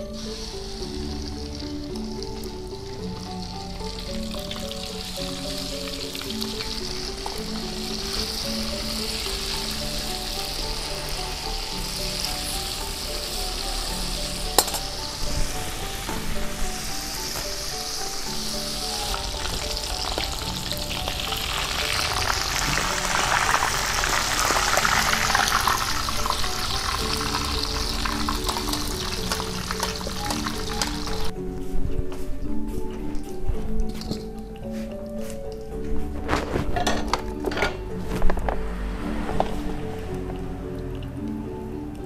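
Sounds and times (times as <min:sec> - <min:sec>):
chicken frying in oil: 0:00.0 - 0:31.3
metal spatula clinking on pan: 0:14.6 - 0:15.0.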